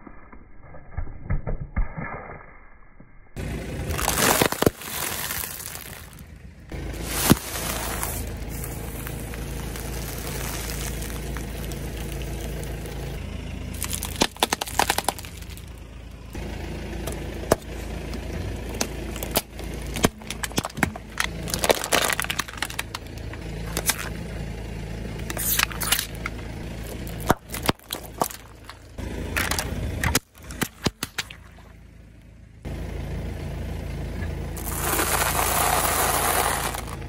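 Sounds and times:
car engine humming: 0:03.4 - 0:37.0
tyre crushing plastic packaging: 0:03.9 - 0:06.3, 0:07.0 - 0:15.8, 0:18.7 - 0:24.1, 0:25.3 - 0:31.3, 0:34.6 - 0:37.0.

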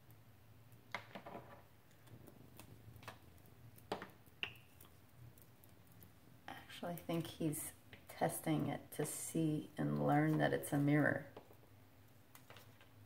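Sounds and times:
parrot beak clicking and tapping: 0:03.8 - 0:04.9.

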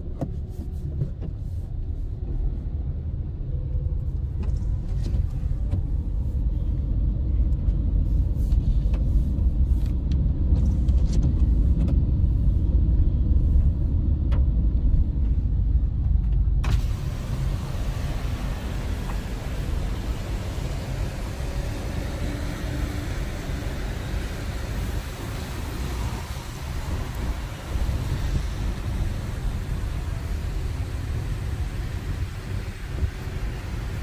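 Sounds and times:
car rumble from inside cabin: 0:00.0 - 0:34.0
steady hiss: 0:16.6 - 0:34.0.

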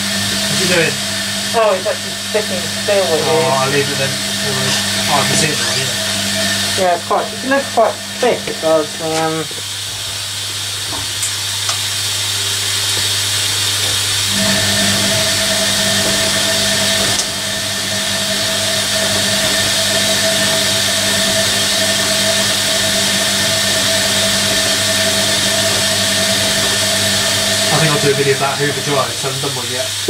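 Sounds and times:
low hum: 0:00.0 - 0:10.4, 0:14.2 - 0:30.0
washing machine drum whine: 0:00.0 - 0:30.0
water hissing into washing machine: 0:00.0 - 0:30.0.

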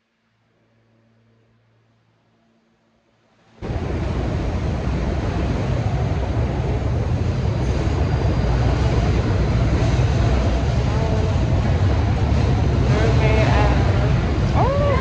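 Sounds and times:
subway train rumbling: 0:03.3 - 0:15.0.

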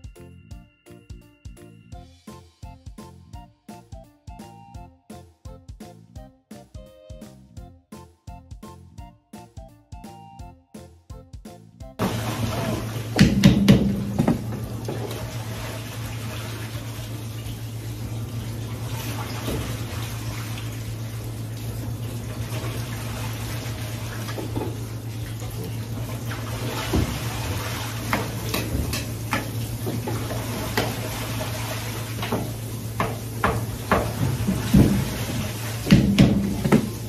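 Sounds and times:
tap water running into sink: 0:12.0 - 0:37.0
dishes knocking and clinking: 0:13.2 - 0:14.4, 0:28.2 - 0:30.0, 0:35.9 - 0:37.0.

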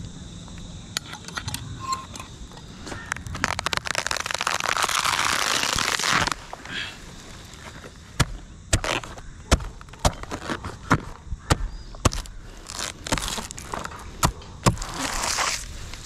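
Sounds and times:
dry fronds crackling and rustling: 0:02.8 - 0:08.2, 0:12.1 - 0:16.0
blade chopping palm crown: 0:08.2 - 0:15.7.

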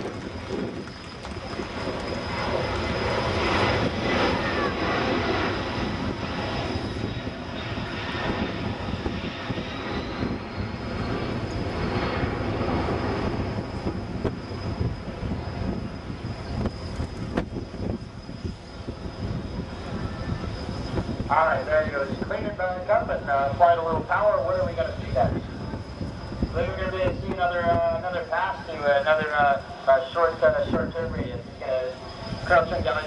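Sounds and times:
jet aircraft rumble with whine: 0:00.0 - 0:33.0.

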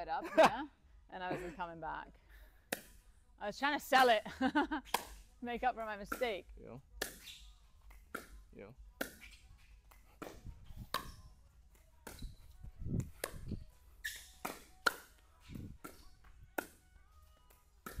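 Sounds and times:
paddles striking pickleball: 0:07.0 - 0:08.4, 0:09.0 - 0:15.2, 0:15.8 - 0:16.8.

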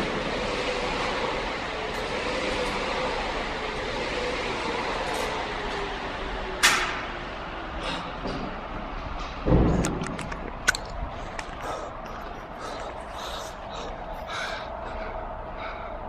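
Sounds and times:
air flywheel whirring: 0:00.0 - 0:09.5.

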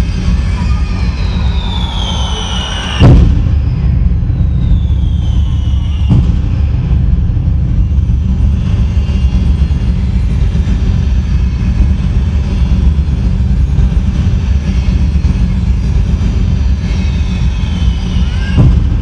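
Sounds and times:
firework whistle falling in pitch: 0:00.3 - 0:07.0, 0:16.9 - 0:19.0
firework bang: 0:01.5 - 0:07.3
low rumble of fireworks booms: 0:03.0 - 0:19.0.

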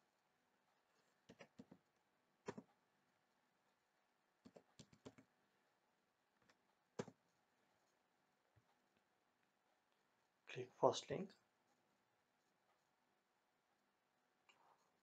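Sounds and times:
mouse clicking: 0:02.4 - 0:02.7, 0:04.4 - 0:05.3
computer keyboard clicking: 0:04.5 - 0:05.3.

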